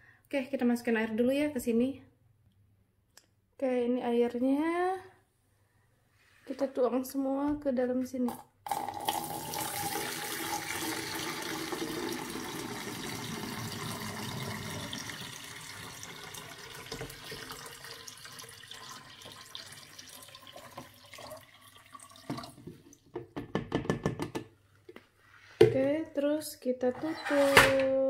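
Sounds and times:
water pouring into plastic tank: 0:08.7 - 0:23.1.

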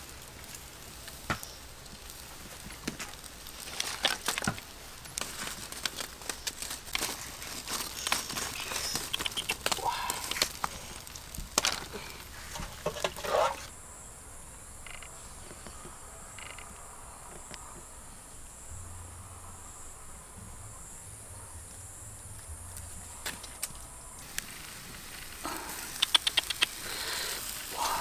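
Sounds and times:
sharp clicks and crackles: 0:00.0 - 0:13.7, 0:23.2 - 0:28.0
insects chirring: 0:00.0 - 0:28.0.

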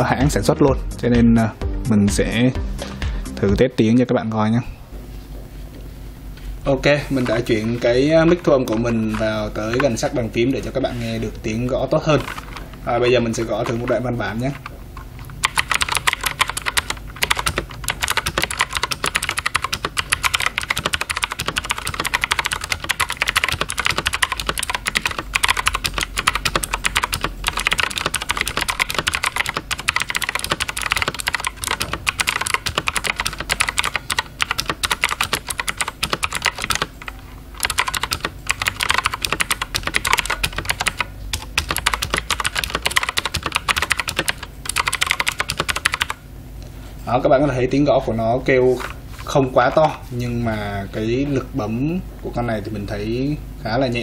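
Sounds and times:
clicky keyboard typing: 0:07.2 - 0:10.2, 0:15.3 - 0:46.2.

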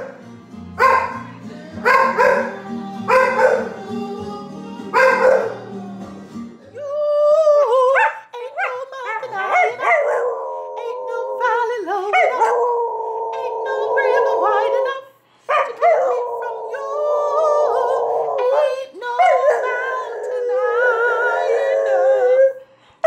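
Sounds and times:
woman singing: 0:01.0 - 0:22.6
dog howling: 0:01.8 - 0:03.8, 0:04.9 - 0:05.7, 0:07.2 - 0:15.0, 0:15.6 - 0:22.6.

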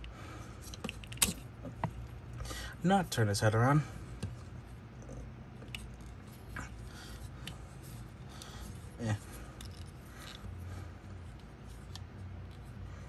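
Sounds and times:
plastic parts clicking and scraping: 0:00.6 - 0:02.0, 0:09.5 - 0:10.5.

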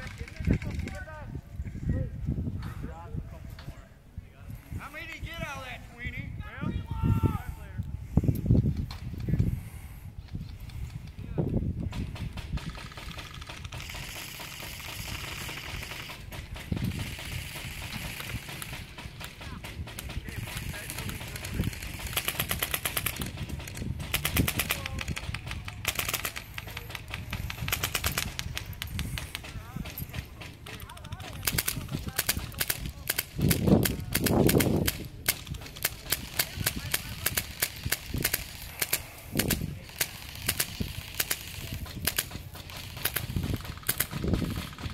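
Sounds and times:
airsoft guns firing bursts: 0:00.0 - 0:01.1, 0:11.9 - 0:44.9.

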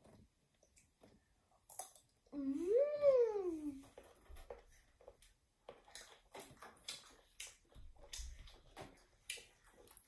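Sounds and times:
chewing crunches: 0:03.8 - 0:10.0.

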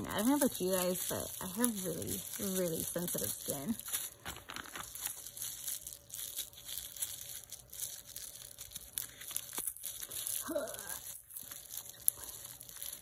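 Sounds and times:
plastic wrapping crinkling: 0:00.0 - 0:13.0.

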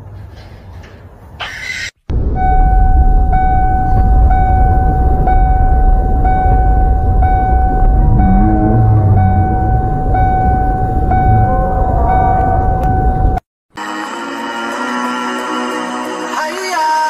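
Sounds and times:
loud vehicle rumble: 0:02.1 - 0:13.4
steady high tone: 0:02.1 - 0:14.4.

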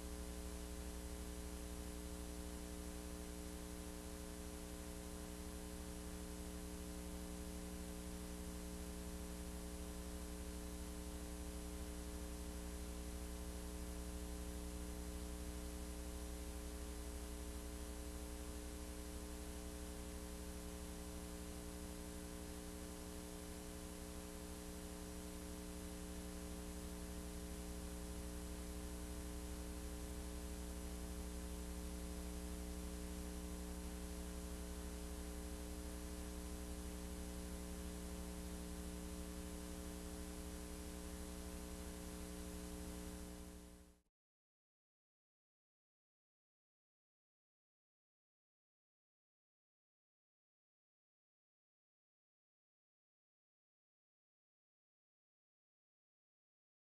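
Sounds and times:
electrical mains hum: 0:00.0 - 0:44.0.

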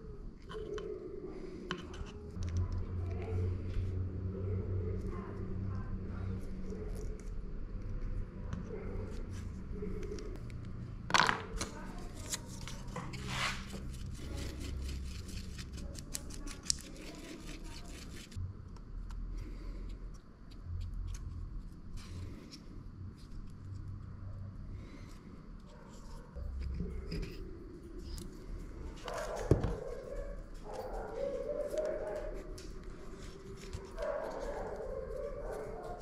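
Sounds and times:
wooden stick scraping and tapping: 0:01.6 - 0:02.6.

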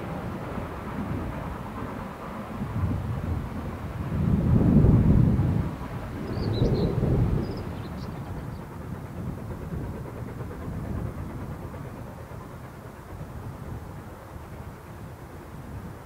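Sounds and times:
low rumble of train: 0:00.0 - 0:16.0
small bird chirping: 0:06.3 - 0:08.2.

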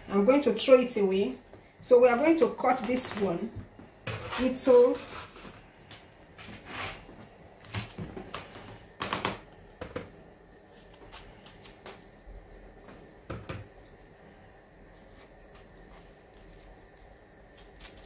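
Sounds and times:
knife slicing plantain: 0:17.5 - 0:18.0.

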